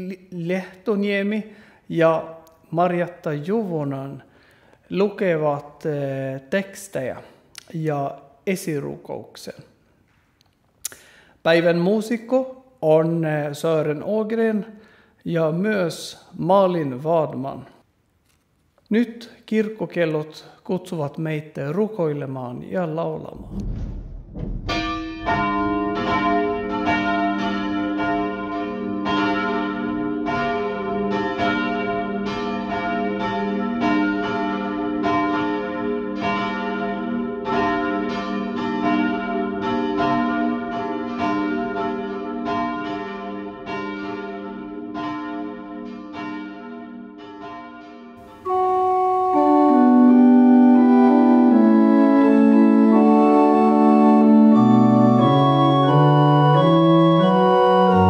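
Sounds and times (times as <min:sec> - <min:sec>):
church bells ringing: 0:24.7 - 0:58.0
organ playing hymn introduction: 0:48.2 - 0:58.0.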